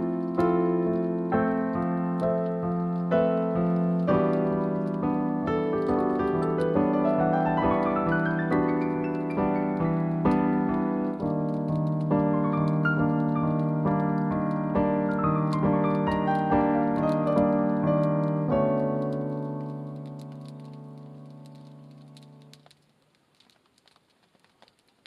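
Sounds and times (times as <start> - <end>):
piano music: 0.0 - 22.7.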